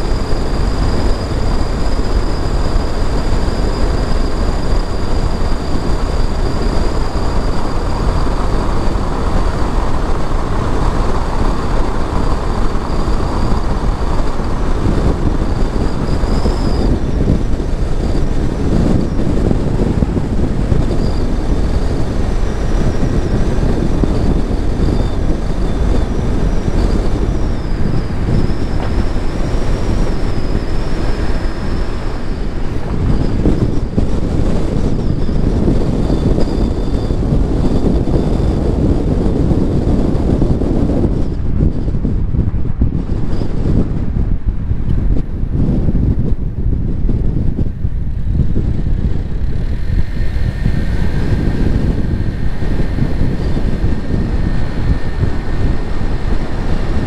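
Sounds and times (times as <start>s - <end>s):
car road and engine rumble: 0.0s - 57.0s
faint high whine: 0.0s - 57.0s.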